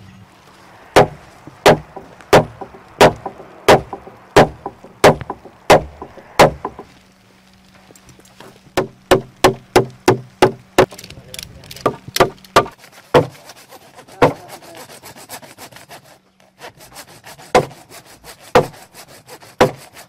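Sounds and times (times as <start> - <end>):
hammer striking wood: 1.0 - 6.9, 8.8 - 11.0, 11.8 - 13.4, 14.2 - 14.4, 17.5 - 17.8, 18.6 - 18.8, 19.6 - 19.8.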